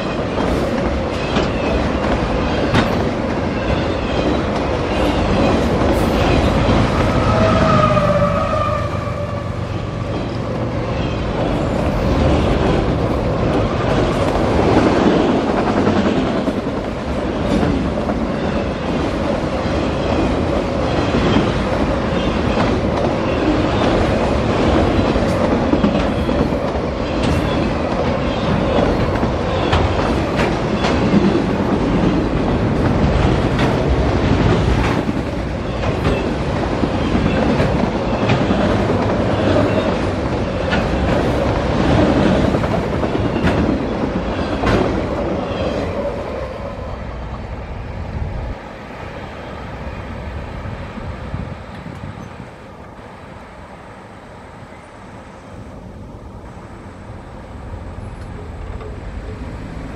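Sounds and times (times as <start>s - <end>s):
wheels clacking over rail joints: 0.0s - 9.3s, 10.0s - 46.2s
diesel locomotive passing: 0.0s - 59.9s
freight train rumbling: 0.0s - 59.9s.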